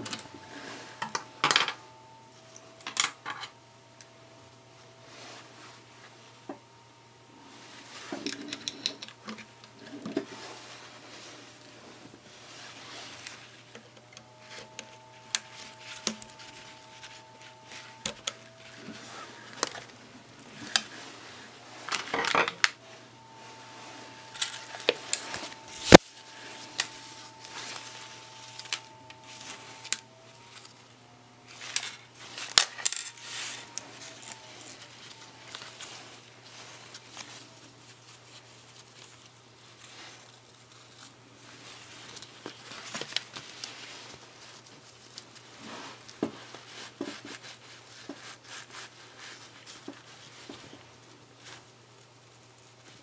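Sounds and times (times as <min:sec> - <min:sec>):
faint low hum: 0:00.0 - 0:53.0
fabric rustling: 0:09.4 - 0:22.2.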